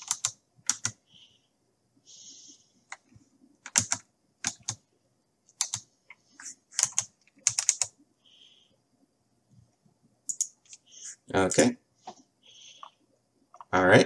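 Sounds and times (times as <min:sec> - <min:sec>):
keyboard and mouse clicking: 0:00.0 - 0:01.0, 0:02.9 - 0:04.8, 0:05.5 - 0:05.9, 0:06.7 - 0:07.9, 0:10.3 - 0:10.8.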